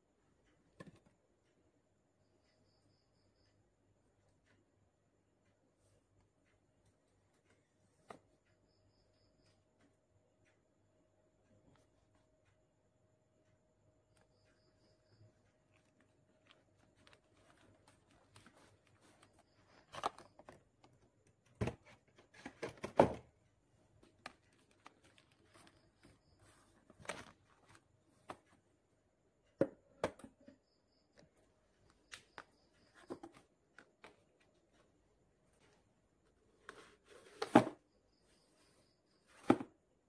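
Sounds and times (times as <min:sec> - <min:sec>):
boxes tapping and knocking: 0:15.1 - 0:23.4, 0:29.5 - 0:30.6, 0:32.8 - 0:34.3.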